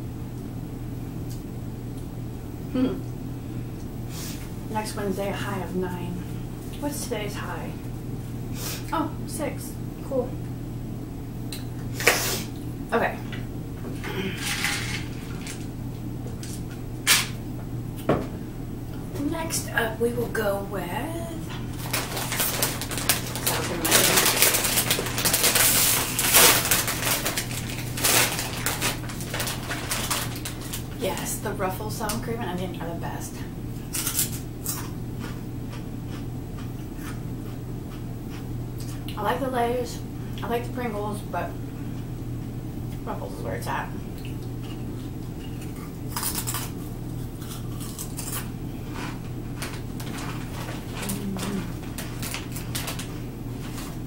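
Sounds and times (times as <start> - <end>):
steady low hum: 0.0 - 54.0
plastic chip bag crinkling: 21.5 - 31.3, 33.9 - 34.9, 45.5 - 54.0.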